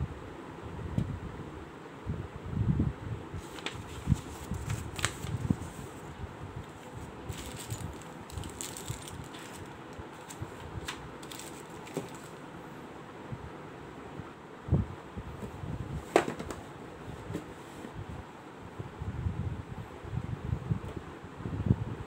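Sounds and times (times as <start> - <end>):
paper being moved: 3.4 - 12.4
plastic bag crinkling: 6.8 - 12.4.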